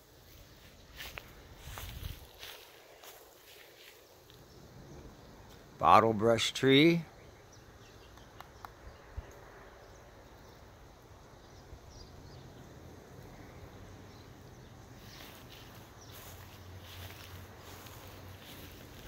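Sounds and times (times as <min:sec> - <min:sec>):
soft scuffing: 0:00.4 - 0:04.0, 0:15.0 - 0:19.0.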